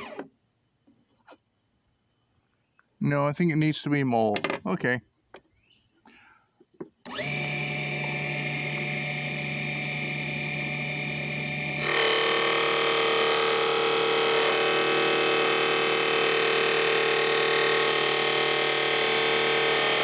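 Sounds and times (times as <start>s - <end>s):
lathe motor whine: 7.1s - 20.0s.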